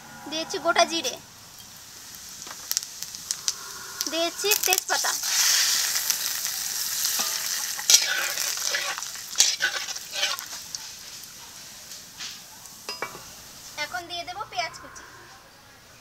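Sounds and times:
spices sizzling in hot oil: 0.3 - 14.8
spatula scraping a pan: 3.2 - 12.4.

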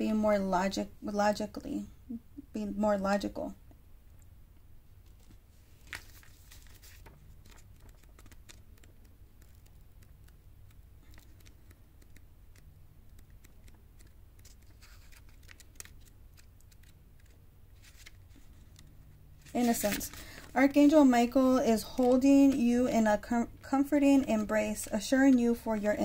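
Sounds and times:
low steady hum: 0.0 - 26.0
cards and paper rustling: 5.0 - 23.3, 24.0 - 26.0.

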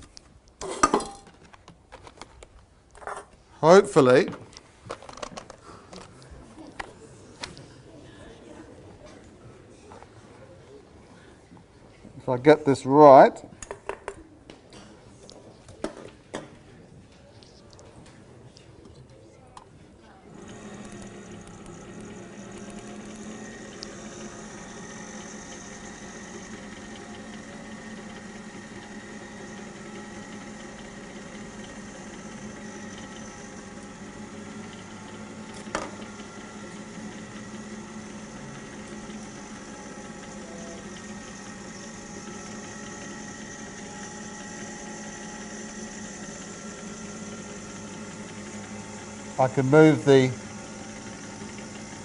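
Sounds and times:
generator motor humming: 20.3 - 52.0.

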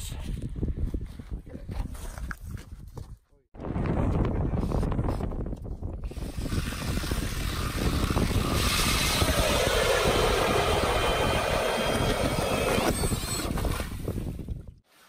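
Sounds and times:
auger grinding through ice: 6.1 - 14.1
cordless drill whining: 6.1 - 14.1.

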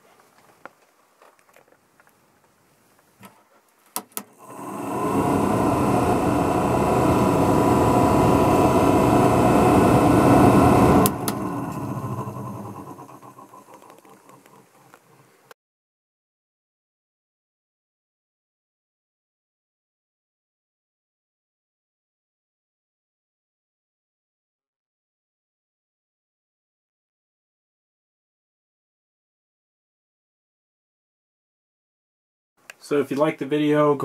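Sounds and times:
exhaust fan whirring: 4.2 - 15.0.

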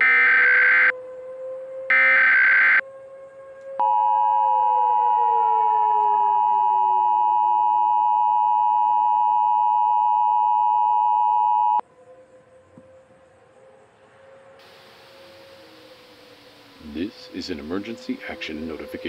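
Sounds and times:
dual-tone alarm: 0.0 - 1.0, 1.8 - 2.9, 3.8 - 11.8
siren winding down: 0.0 - 19.0.

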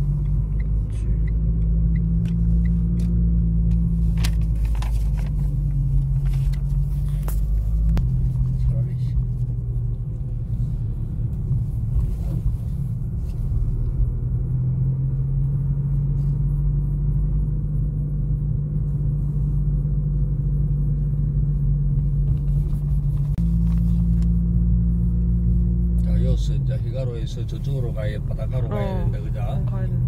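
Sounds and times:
car engine and road noise: 0.0 - 30.0.

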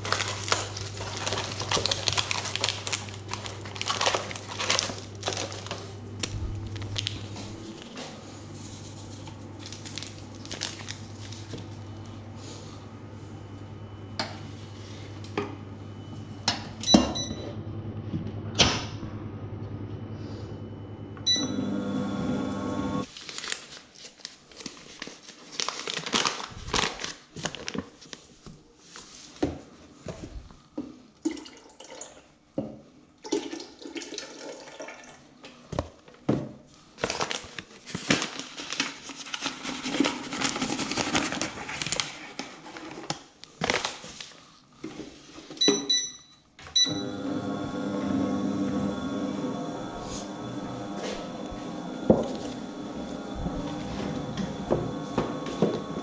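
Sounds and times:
machine hum: 0.0 - 23.1, 46.6 - 56.0.

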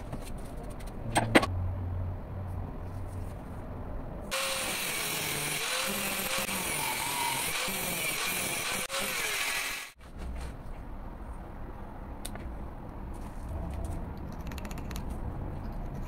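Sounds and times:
angle grinder cutting steel: 4.3 - 10.0.

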